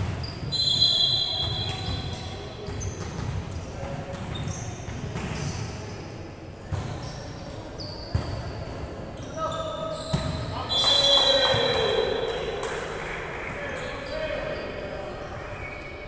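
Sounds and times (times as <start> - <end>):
sneakers squeaking on floor: 0.0 - 5.9, 6.6 - 12.6, 13.4 - 16.0
echoing hall murmur: 8.8 - 16.0.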